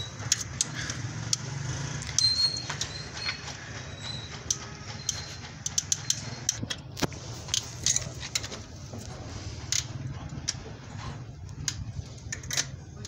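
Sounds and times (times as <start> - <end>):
metallic clicks of a spanner: 0.2 - 3.4, 4.2 - 8.5, 11.5 - 12.8.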